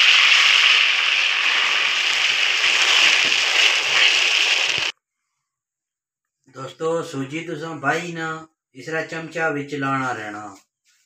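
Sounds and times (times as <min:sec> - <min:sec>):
loud sizzling in a pan: 0:00.0 - 0:04.9.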